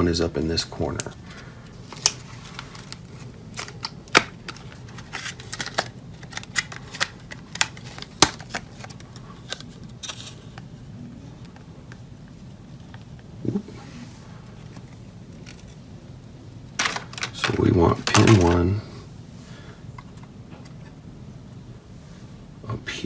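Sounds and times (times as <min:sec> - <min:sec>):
plastic clicks and crackles: 0:02.0 - 0:10.7, 0:16.8 - 0:18.6.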